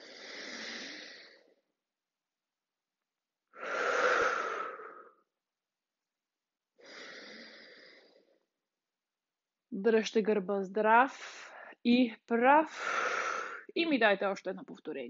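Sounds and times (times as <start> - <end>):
woman breathing: 0.0 - 1.7, 3.5 - 5.2, 6.8 - 8.5, 11.2 - 11.8, 12.7 - 13.8.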